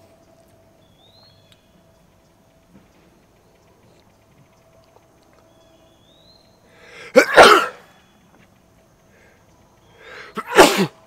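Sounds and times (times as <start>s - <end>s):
breathy intake: 6.7s - 7.8s, 9.1s - 10.9s
man sneezing: 7.0s - 7.8s, 10.4s - 11.0s.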